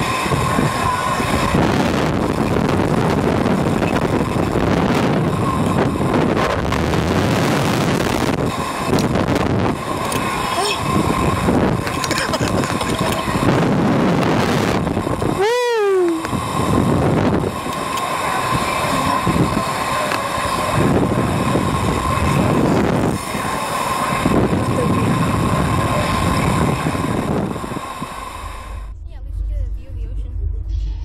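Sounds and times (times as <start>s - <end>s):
wind buffeting microphone: 0.0s - 31.0s
person yelling: 15.4s - 16.3s.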